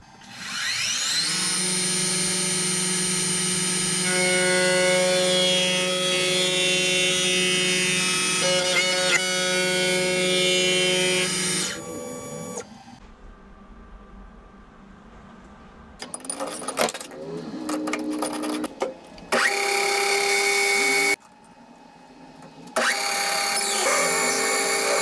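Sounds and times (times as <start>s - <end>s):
milling machine spindle whine: 22.8s - 25.0s.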